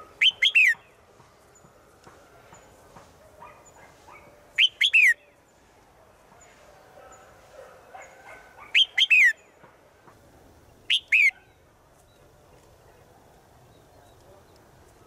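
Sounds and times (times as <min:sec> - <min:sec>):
bird calling sharp notes: 0:00.0 - 0:00.9, 0:04.6 - 0:05.3, 0:08.7 - 0:09.4, 0:10.8 - 0:11.4.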